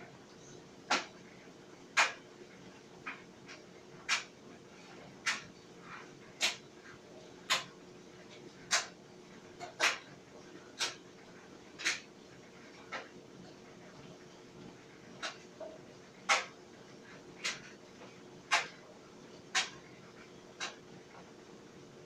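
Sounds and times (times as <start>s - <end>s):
sharp dryer clicks: 2.0s - 2.2s, 18.5s - 18.8s, 19.5s - 19.8s.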